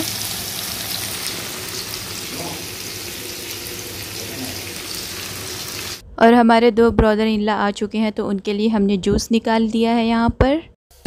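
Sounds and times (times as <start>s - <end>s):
fish sizzling in hot oil: 0.0s - 6.0s.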